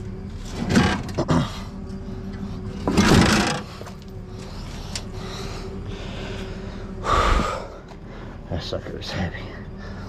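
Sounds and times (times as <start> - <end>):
steady hum: 0.0 - 10.0
heavy metal machine scraping clunk: 2.8 - 4.0.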